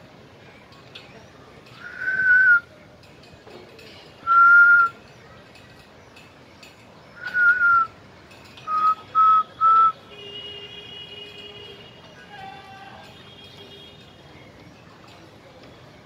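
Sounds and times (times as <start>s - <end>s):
person whistling notes: 1.8s - 2.6s, 4.3s - 4.9s, 7.2s - 7.9s, 8.7s - 10.0s.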